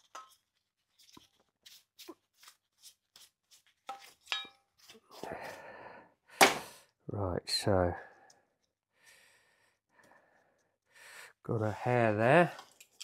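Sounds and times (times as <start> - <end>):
tools tapping and clinking: 3.9 - 4.7.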